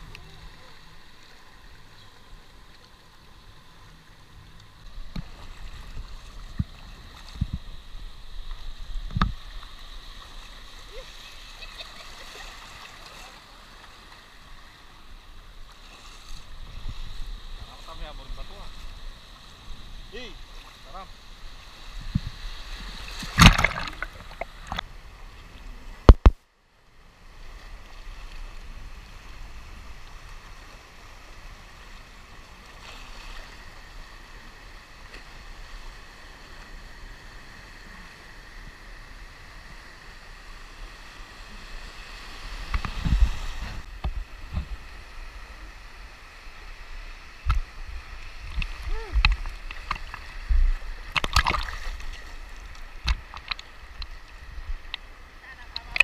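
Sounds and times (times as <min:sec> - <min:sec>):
water splashes: 0:00.0 - 0:15.0, 0:15.6 - 0:24.8, 0:46.7 - 0:56.0
sea waves sloshing and gurgling: 0:00.0 - 0:26.3, 0:27.1 - 0:56.0.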